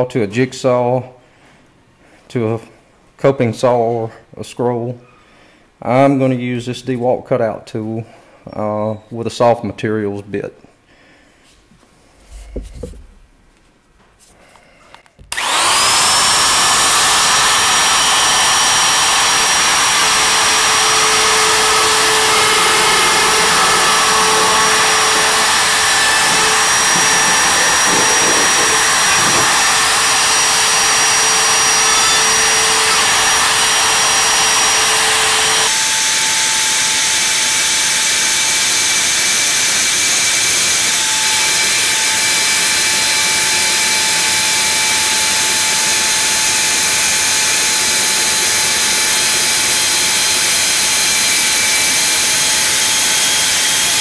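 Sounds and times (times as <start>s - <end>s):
cutting tool high-pitched whine: 15.3s - 54.0s.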